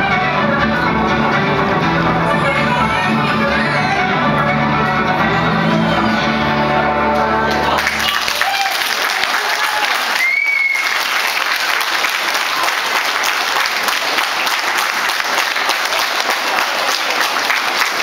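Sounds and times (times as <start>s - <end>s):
audience applauding: 7.1s - 18.0s.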